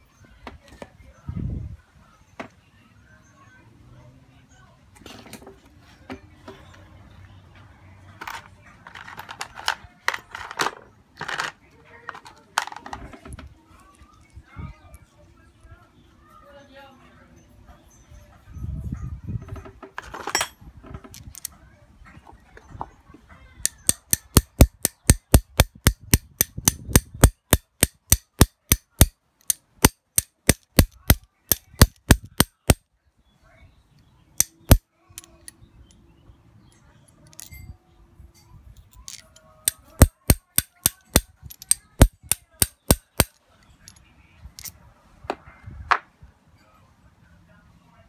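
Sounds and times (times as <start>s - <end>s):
ratchet wrench clicking: 23.7s - 32.8s, 34.4s - 34.8s, 39.7s - 43.3s.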